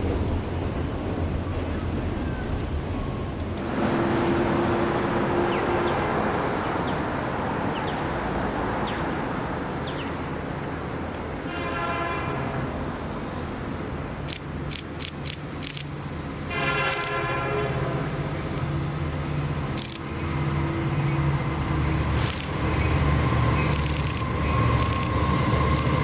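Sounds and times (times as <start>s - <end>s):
train horn blast: 3.6s - 6.8s, 11.4s - 13.0s, 16.5s - 18.6s
sharp clicks: 14.2s - 15.9s, 16.9s - 17.2s, 19.7s - 20.1s, 22.2s - 22.6s, 23.6s - 26.0s.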